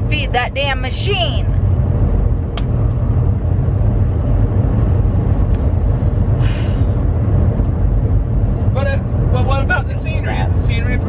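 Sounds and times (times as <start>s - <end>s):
truck engine and road rumble: 0.0s - 11.0s.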